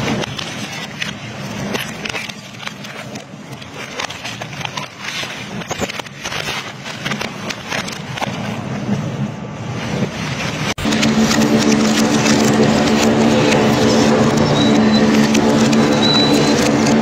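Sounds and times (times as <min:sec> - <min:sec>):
machine low hum: 0:10.8 - 0:17.0
shredder crunching metal: 0:10.8 - 0:17.0.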